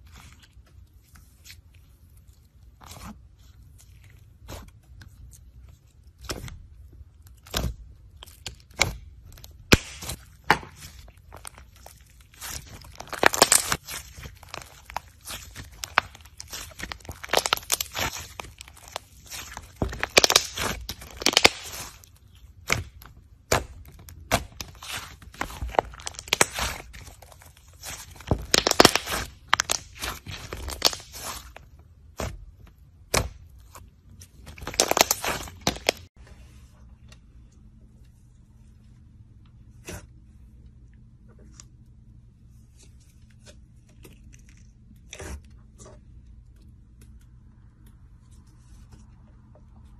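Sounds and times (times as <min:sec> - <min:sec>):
slime popping and crackling: 0:07.4 - 0:32.4, 0:34.4 - 0:36.1.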